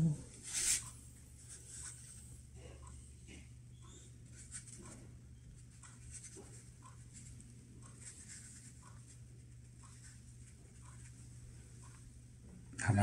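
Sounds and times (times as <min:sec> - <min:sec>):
steady low hum: 0:00.0 - 0:13.0
brush scratching on paper: 0:00.4 - 0:02.2, 0:04.3 - 0:05.0, 0:05.9 - 0:11.2.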